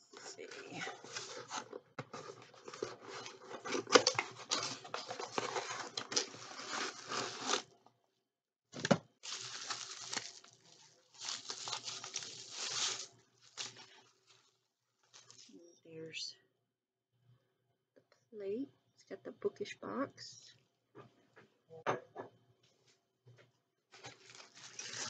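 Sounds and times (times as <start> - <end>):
packaging crinkling and tearing: 0.3 - 7.7, 9.2 - 15.5, 23.9 - 25.0.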